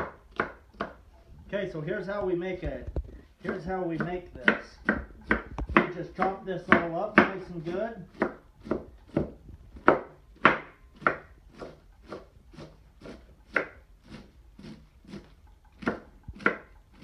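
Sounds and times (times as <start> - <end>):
knife chopping cabbage on wood: 0.0 - 1.0, 2.2 - 17.0.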